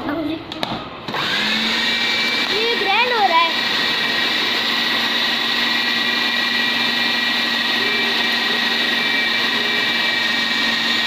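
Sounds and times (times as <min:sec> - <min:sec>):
food processor motor humming: 0:01.1 - 0:11.0.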